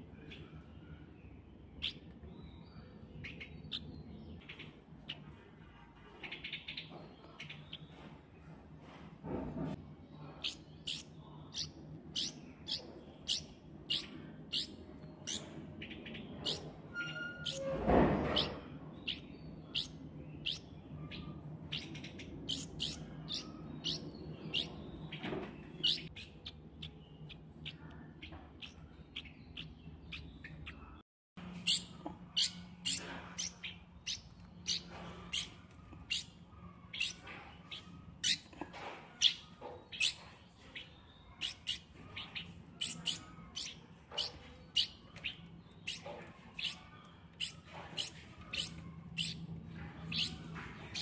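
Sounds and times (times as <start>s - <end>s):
chick begging calls: 31.6s - 38.5s.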